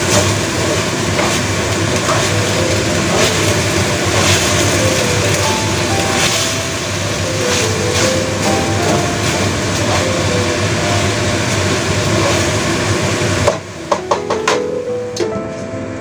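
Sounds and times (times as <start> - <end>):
food sizzling in a wok: 0.0 - 13.9
sharp knocks: 13.4 - 14.7.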